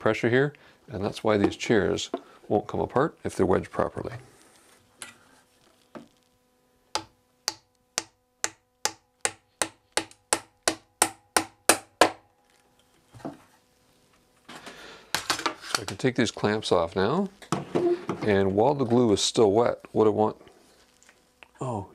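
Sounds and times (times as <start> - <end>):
wooden mallet knocking wedge: 7.0 - 12.2.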